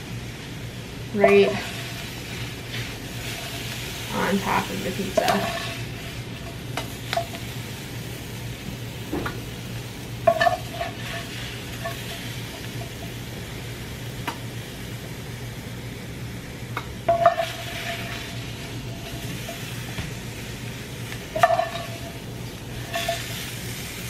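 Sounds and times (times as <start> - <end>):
food sizzling: 0.0 - 24.0
wooden spatula scraping frying pan: 1.2 - 7.4, 10.2 - 12.8, 17.1 - 20.2, 21.2 - 23.9.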